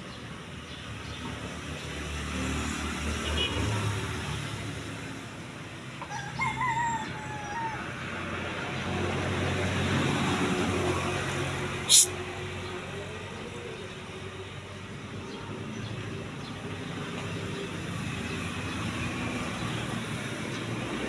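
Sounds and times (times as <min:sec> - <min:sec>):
rooster crowing: 0:06.0 - 0:08.0.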